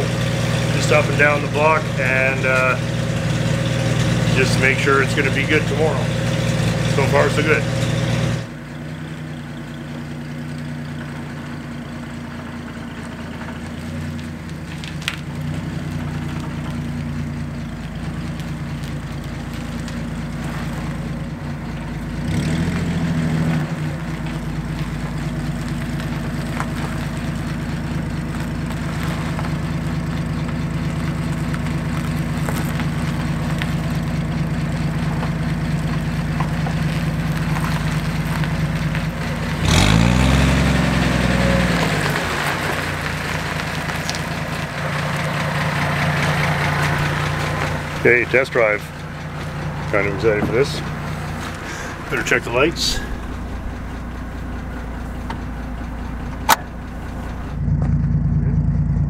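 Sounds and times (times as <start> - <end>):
car engine idling and revving: 0.0 - 59.0.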